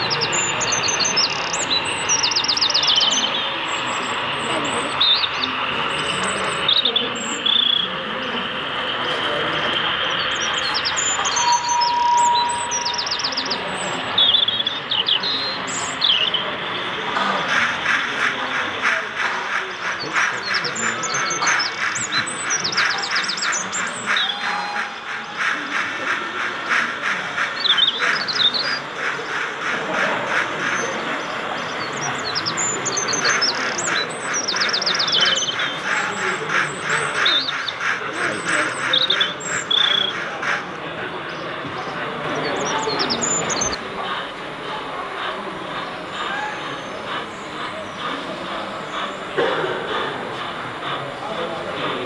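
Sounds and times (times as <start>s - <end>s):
small birds chirping and trilling: 0.0s - 49.4s
model train clattering on track: 0.0s - 52.0s
steady tone: 8.0s - 14.0s.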